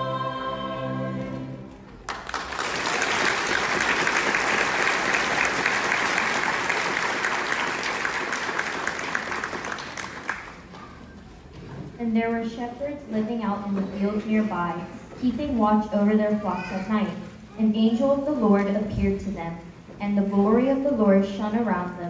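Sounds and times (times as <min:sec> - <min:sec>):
audience clapping: 0:01.9 - 0:11.0.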